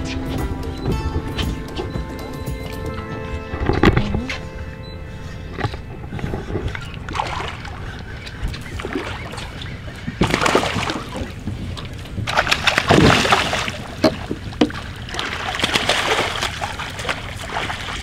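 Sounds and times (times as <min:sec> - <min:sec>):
water splashing: 0:05.6 - 0:18.0.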